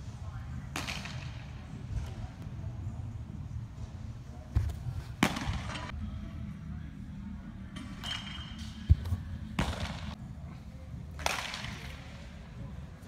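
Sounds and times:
baseballs smacking into a mitt: 0.8s - 1.4s, 11.2s - 12.0s.

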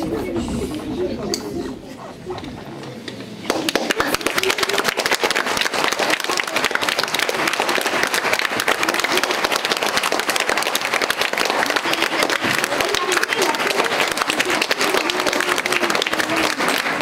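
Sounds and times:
audience applause: 3.4s - 17.0s.

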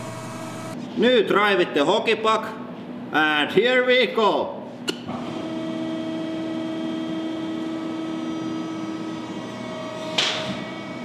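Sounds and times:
hydraulic machine humming: 0.0s - 0.8s, 4.9s - 11.0s.

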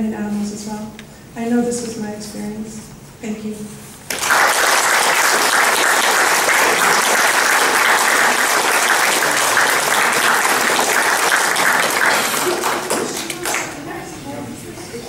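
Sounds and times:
audience applauding: 4.1s - 13.9s.

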